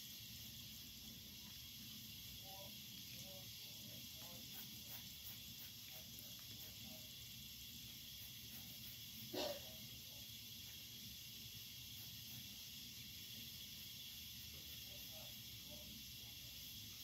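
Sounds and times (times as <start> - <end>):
marker scratching on paper: 4.1 - 7.0, 8.0 - 9.4.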